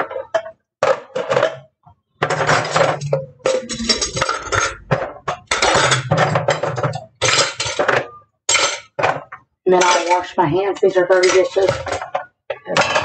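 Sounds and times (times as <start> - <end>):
dishes and cutlery clattering: 0.0 - 13.0.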